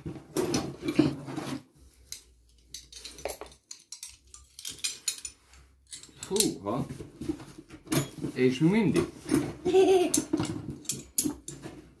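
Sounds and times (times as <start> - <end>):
metal spanners clinking: 2.1 - 6.8, 7.8 - 8.3, 8.9 - 11.8.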